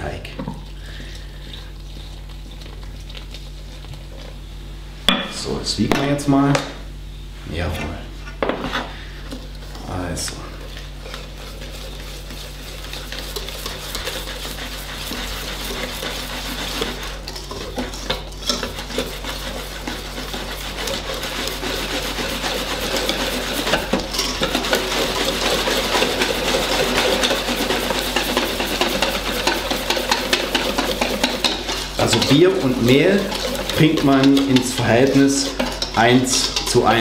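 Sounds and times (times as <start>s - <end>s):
whisk scraping metal bowl: 9.9s - 37.0s.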